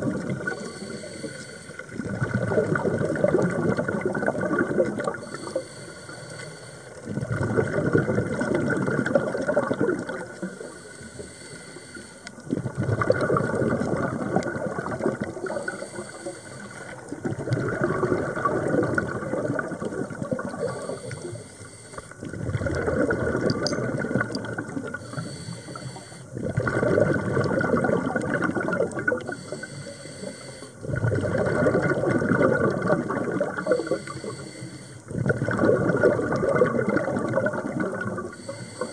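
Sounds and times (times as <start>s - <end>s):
hissing regulator inhalation: 0.4s - 2.0s, 5.2s - 7.1s, 10.3s - 12.4s, 15.4s - 17.5s, 20.4s - 22.3s, 24.9s - 26.4s, 29.2s - 31.0s, 33.6s - 35.1s, 38.3s - 38.9s
bubbling diver exhalation: 2.0s - 5.4s, 7.1s - 10.5s, 12.5s - 16.1s, 17.1s - 21.5s, 22.2s - 25.4s, 26.3s - 29.6s, 30.8s - 34.4s, 35.1s - 38.8s.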